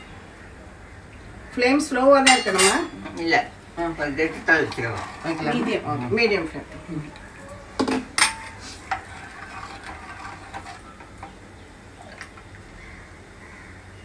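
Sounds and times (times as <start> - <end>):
steel ladle clinking against pot: 2.2 - 3.3, 7.8 - 9.0.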